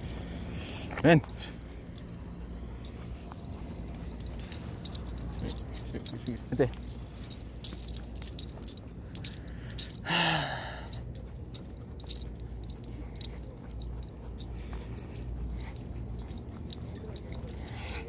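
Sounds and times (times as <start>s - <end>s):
metallic jingling and clinking: 0.0s - 18.0s
footsteps on pavement: 11.0s - 18.0s.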